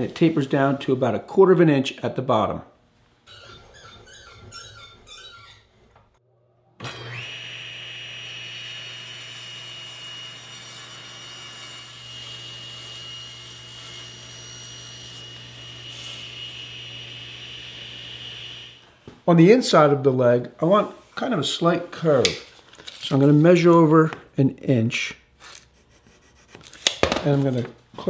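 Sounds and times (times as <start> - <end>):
table saw motor running: 6.8 - 18.8.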